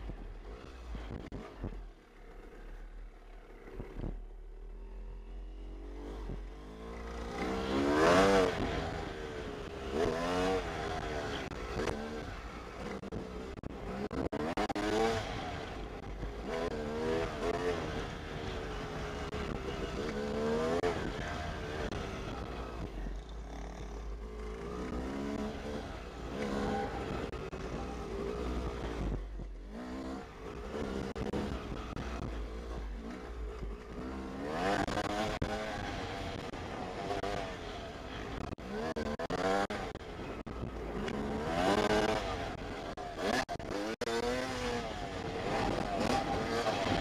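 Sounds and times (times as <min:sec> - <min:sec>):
dirt bike engine revving: 0:06.0 - 0:15.6, 0:29.7 - 0:40.0, 0:40.6 - 0:47.0.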